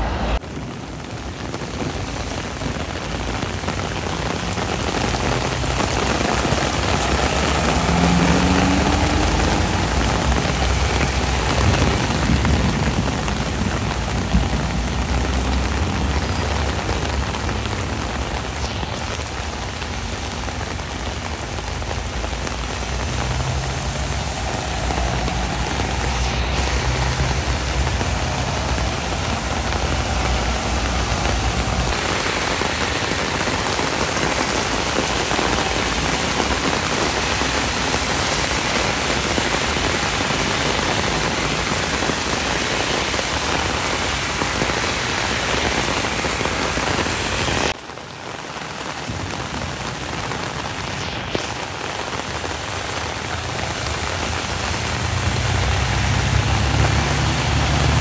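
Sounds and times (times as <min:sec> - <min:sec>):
bus engine rumbling: 0:00.0 - 0:19.0, 0:19.9 - 0:38.2
heavy rain on wet road: 0:00.0 - 0:58.0.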